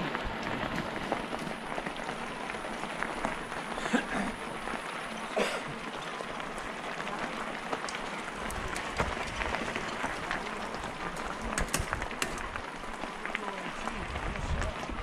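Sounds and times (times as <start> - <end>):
bike tyres rolling on gravel: 0.0 - 15.0
bike bumps: 5.4 - 13.0.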